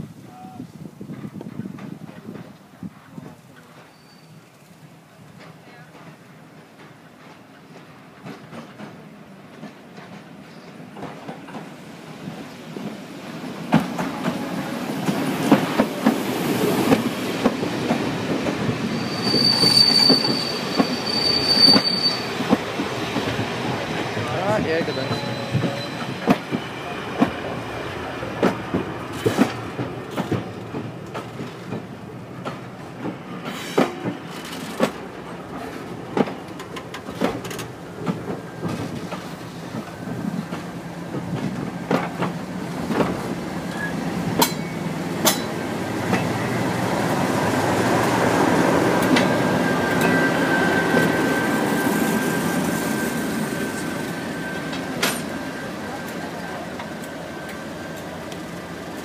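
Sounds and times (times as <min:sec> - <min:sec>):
diesel locomotive engine: 0:01.0 - 0:59.0
train wheels clicking over rail joints: 0:04.7 - 0:11.8, 0:28.4 - 0:47.2, 0:53.2 - 0:59.0
steady high whistle: 0:18.8 - 0:22.4, 0:49.1 - 0:56.0.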